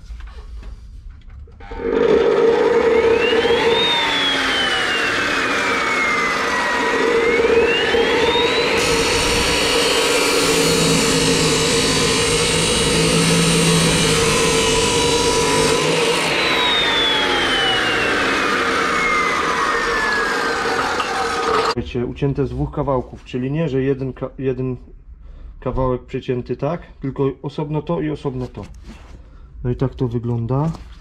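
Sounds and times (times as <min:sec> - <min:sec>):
cut-off saw motor whining: 0:01.6 - 0:21.8
disc grinding through steel tube: 0:01.6 - 0:21.8.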